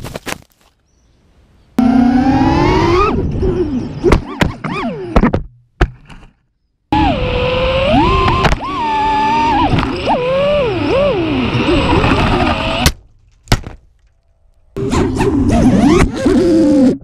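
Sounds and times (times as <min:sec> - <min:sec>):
drone motors whining: 0:01.8 - 0:05.4, 0:06.9 - 0:12.9, 0:14.7 - 0:17.0.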